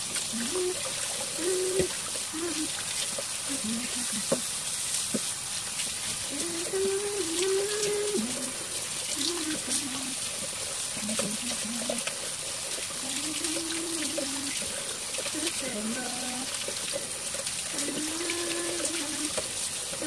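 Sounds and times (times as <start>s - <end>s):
hands rinsing greens: 0.0s - 20.0s
wordless voice: 0.3s - 0.8s, 1.4s - 2.7s, 3.5s - 4.4s, 6.3s - 8.6s, 9.2s - 10.2s, 11.0s - 12.0s, 13.0s - 14.6s, 15.3s - 16.5s, 17.7s - 19.3s.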